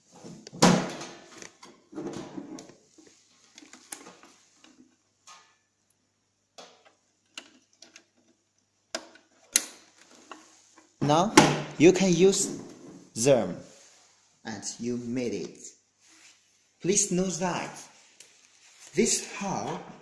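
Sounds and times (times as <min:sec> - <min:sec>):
loud knock of plastic printer: 0:11.3 - 0:11.7.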